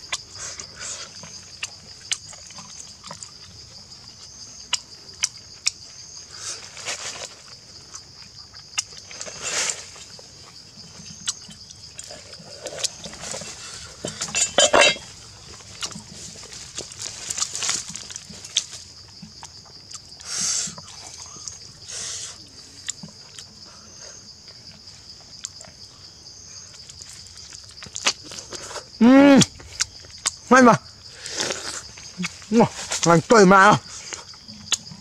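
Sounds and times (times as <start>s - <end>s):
wet chewing and tearing: 0.0s - 14.3s, 15.1s - 21.7s, 22.8s - 23.6s, 26.7s - 30.5s
forest insects droning: 0.0s - 35.0s.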